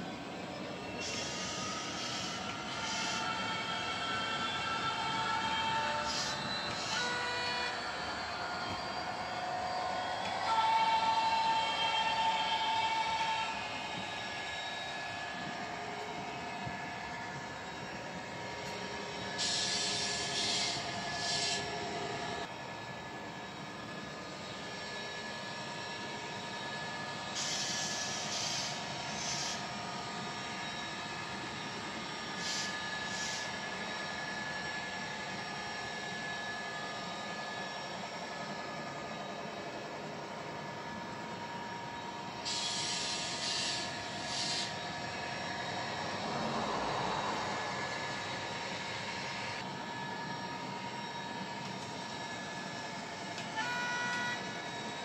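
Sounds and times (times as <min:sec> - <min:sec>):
model diesel engine drone: 0:00.0 - 0:55.0
short hissy bursts: 0:42.5 - 0:44.7.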